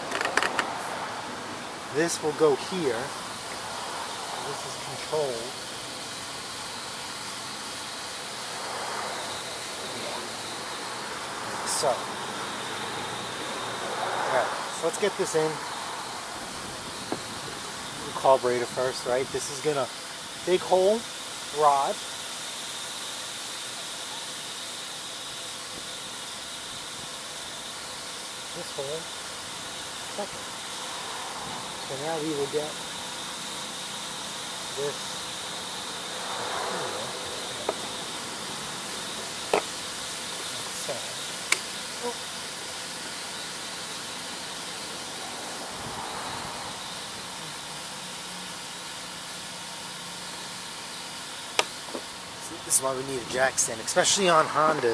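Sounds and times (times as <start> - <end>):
handling noise: 0.0 - 0.7
faint high whine: 0.0 - 22.0, 23.4 - 54.9
steady background hiss: 0.0 - 54.9.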